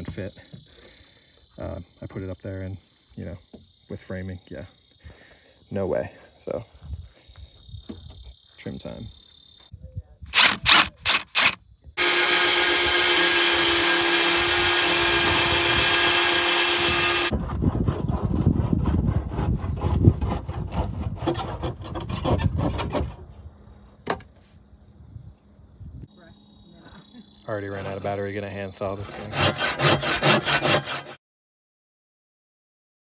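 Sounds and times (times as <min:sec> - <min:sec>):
cordless drill spinning: 0:10.3 - 0:17.3
power tool running steadily: 0:10.3 - 0:17.3.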